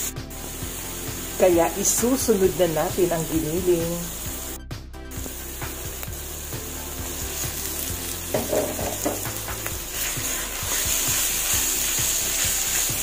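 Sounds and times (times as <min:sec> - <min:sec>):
onions sizzling in a frying pan: 0:00.0 - 0:13.0
spatula stirring meat in pan: 0:07.0 - 0:13.0.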